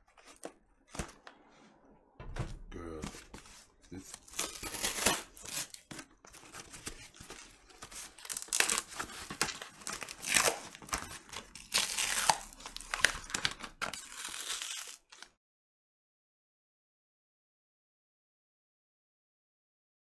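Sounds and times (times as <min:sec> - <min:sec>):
cardboard and tape tearing: 0:03.1 - 0:15.3.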